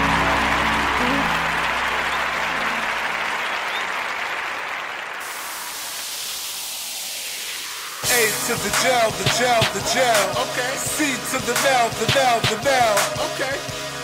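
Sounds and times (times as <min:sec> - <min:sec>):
crowd applause: 0:00.0 - 0:06.7
rap track with vocal: 0:08.0 - 0:14.0.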